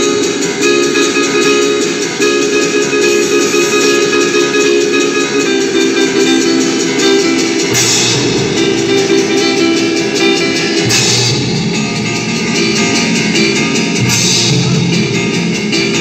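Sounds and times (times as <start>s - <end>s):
show music with guitar and drums: 0.0s - 16.0s
splashy cymbal accents: 0.0s - 16.0s.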